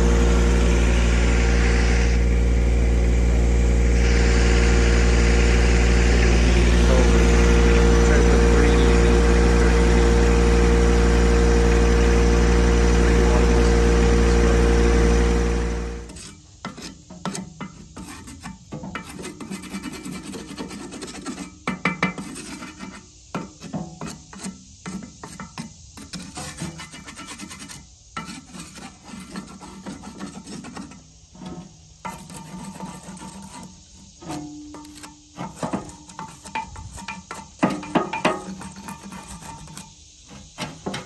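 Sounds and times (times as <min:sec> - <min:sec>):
tractor engine running: 0:00.0 - 0:16.1
stick scraping clay pipe: 0:16.0 - 0:41.0.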